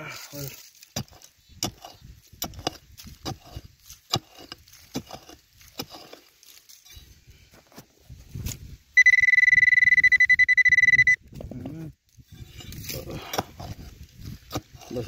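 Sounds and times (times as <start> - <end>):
digging tool chopping stony soil: 0.7 - 6.3, 12.6 - 15.0.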